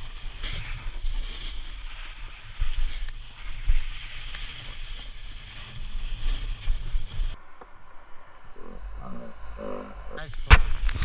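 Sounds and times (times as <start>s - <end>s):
snowboard scraping over snow: 0.0s - 7.4s.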